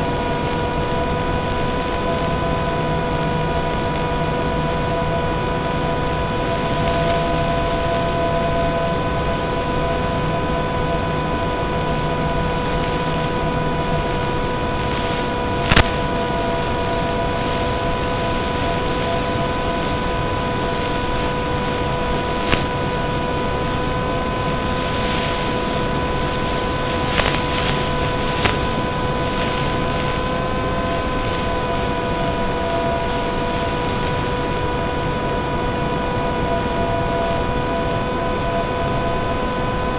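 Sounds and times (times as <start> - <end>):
constant whining tones: 0.0 - 39.9
electronic hiss: 0.0 - 39.9.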